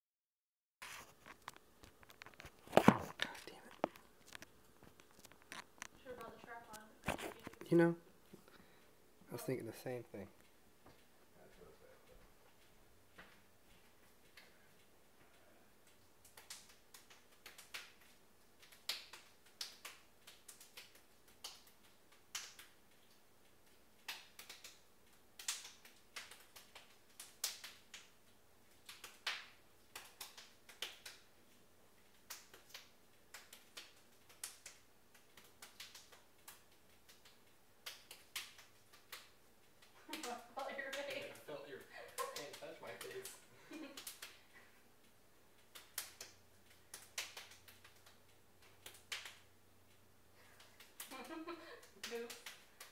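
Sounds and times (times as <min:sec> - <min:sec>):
hands clapping and slapping: 0:15.9 - 0:22.8, 0:24.0 - 0:24.8, 0:25.4 - 0:28.1, 0:28.8 - 0:31.3, 0:32.1 - 0:41.5, 0:42.1 - 0:44.4, 0:45.6 - 0:49.5, 0:50.5 - 0:52.9.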